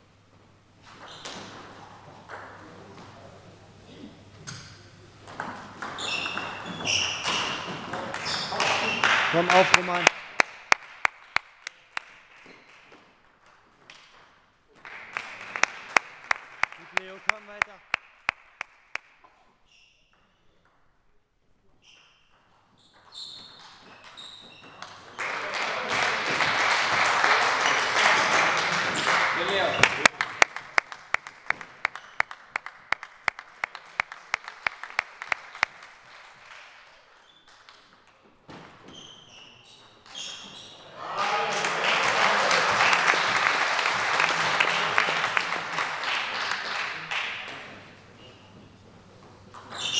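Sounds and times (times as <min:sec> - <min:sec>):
table tennis ball bouncing: 0:05.2 - 0:10.1
sports shoes squeaking on wood floor: 0:05.8 - 0:09.7, 0:21.8 - 0:24.9, 0:38.5 - 0:40.8.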